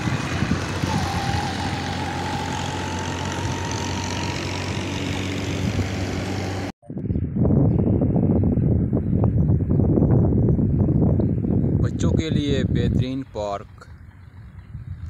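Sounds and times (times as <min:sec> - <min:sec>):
vehicle engine humming: 0:00.0 - 0:06.8.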